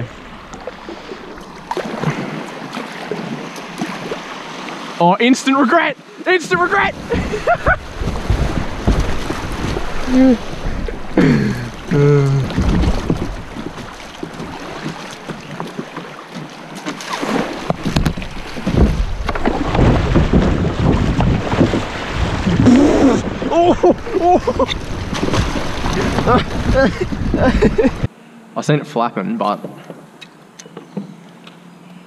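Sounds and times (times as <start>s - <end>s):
paddle splashes: 0.1s - 28.1s
wind buffeting microphone: 6.5s - 15.0s, 17.6s - 28.1s
short vocal sounds: 11.2s - 12.6s.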